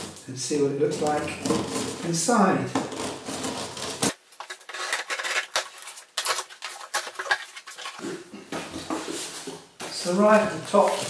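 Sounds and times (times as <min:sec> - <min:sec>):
cardboard crackling and rustling: 0:00.9 - 0:09.6.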